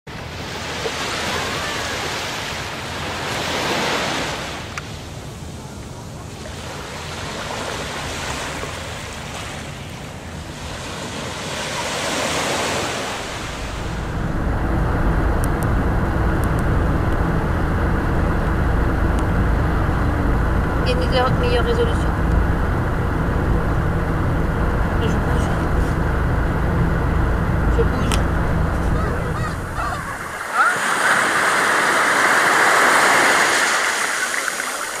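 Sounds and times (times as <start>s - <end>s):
sea waves breaking on beach: 0.1s - 5.4s, 6.2s - 14.4s, 28.8s - 35.0s
car road noise rumble: 13.2s - 30.4s.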